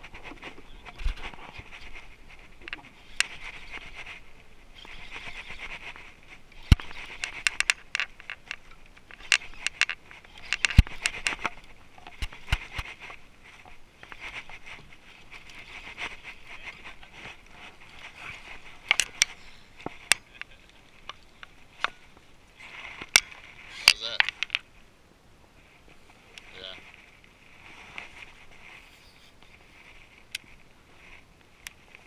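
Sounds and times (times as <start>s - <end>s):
camera handling rubbing and rustling: 0.0s - 24.7s, 25.8s - 32.0s.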